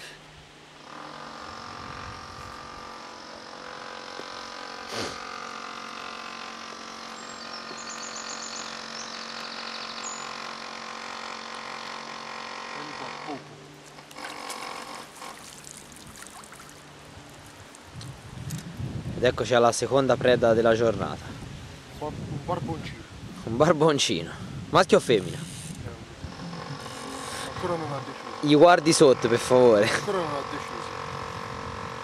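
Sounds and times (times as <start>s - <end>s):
steady multi-tone hum: 0.0s - 32.0s
water splashing: 14.0s - 18.1s.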